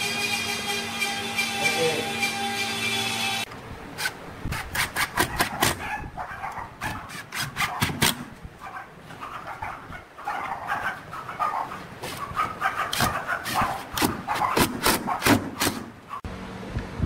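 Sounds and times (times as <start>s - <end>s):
screw grinding into wood: 0.0s - 5.8s, 6.8s - 8.2s, 12.0s - 15.8s.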